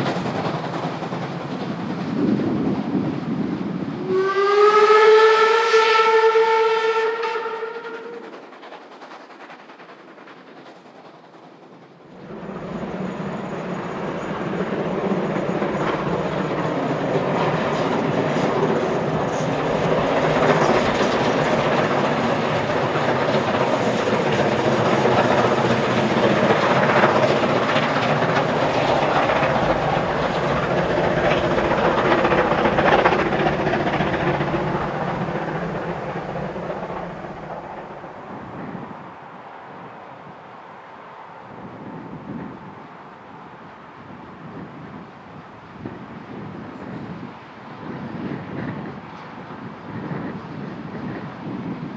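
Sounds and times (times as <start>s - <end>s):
train rumbling under load: 0.0s - 51.9s
steam whistle blast: 4.0s - 8.2s.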